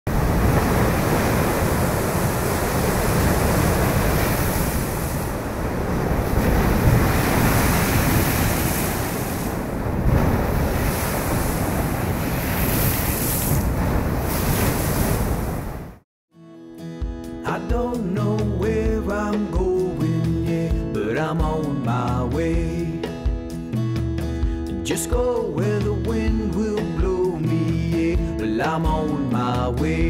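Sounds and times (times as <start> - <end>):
sea waves breaking on rocks: 0.1 - 16.0
wind buffeting microphone: 0.1 - 16.0.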